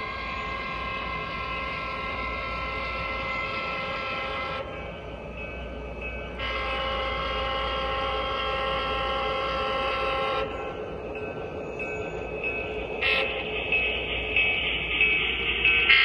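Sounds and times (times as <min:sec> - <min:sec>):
model locomotive air horn: 0:06.4 - 0:10.5.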